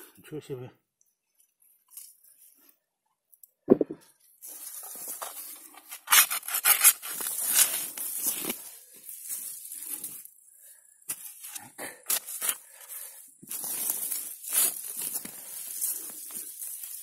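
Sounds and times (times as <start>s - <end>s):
scraping and rustling of earth: 4.3s - 10.4s, 11.1s - 17.0s.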